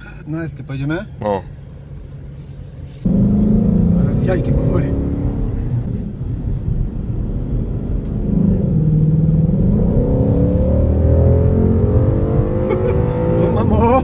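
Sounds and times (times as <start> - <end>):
car engine accelerating: 3.0 - 14.0.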